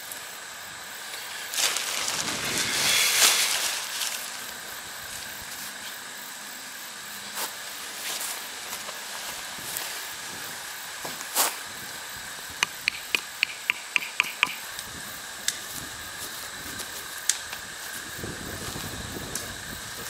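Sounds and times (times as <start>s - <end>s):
steady hiss: 0.0s - 20.0s
tent peg clicks: 12.6s - 14.9s.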